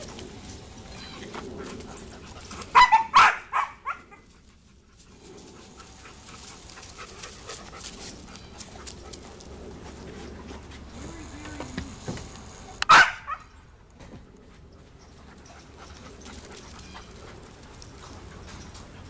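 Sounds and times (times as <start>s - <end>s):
dog barking: 2.7s - 4.2s, 12.9s - 13.5s.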